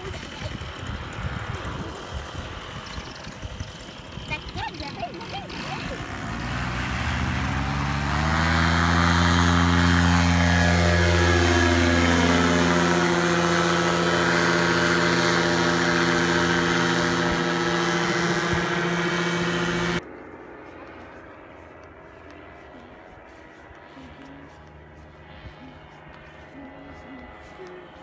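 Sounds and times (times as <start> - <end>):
paramotor engine droning: 0.0 - 28.0.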